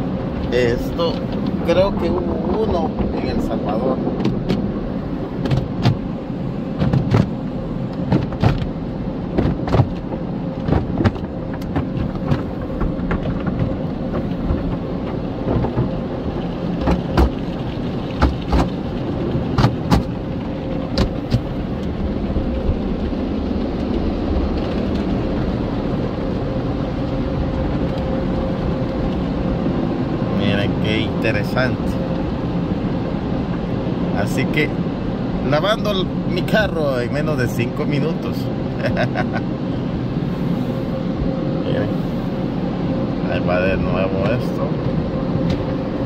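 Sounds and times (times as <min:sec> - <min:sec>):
slaps and thumps on car glass: 0:04.2 - 0:04.7, 0:05.4 - 0:06.1, 0:06.8 - 0:07.4, 0:08.0 - 0:14.8, 0:16.8 - 0:17.5, 0:18.1 - 0:18.8, 0:19.5 - 0:20.2, 0:20.9 - 0:21.5.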